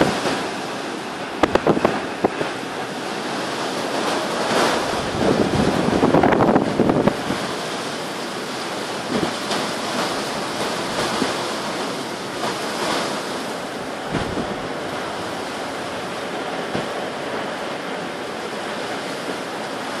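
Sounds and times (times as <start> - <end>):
strong wind blowing: 1.2 - 2.8, 4.8 - 7.6, 13.7 - 17.8
wind thumps on microphone: 1.3 - 2.6, 14.0 - 17.1.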